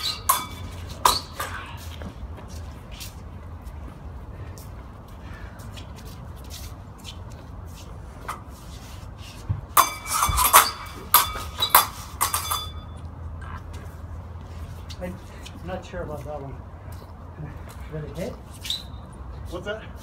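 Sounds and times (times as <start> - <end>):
sword blades clashing: 0.0 - 1.7, 9.8 - 13.0.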